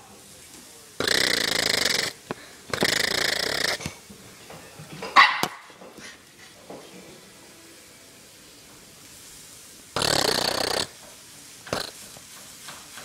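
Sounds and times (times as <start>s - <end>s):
small dog barking: 5.2s - 5.7s.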